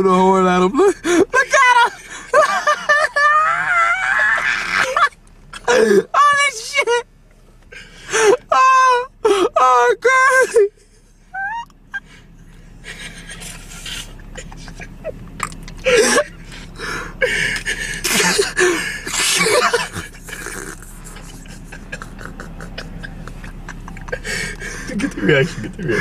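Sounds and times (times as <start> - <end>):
breathy gasping voices: 15.8 - 19.3, 24.1 - 25.1, 25.7 - 26.0.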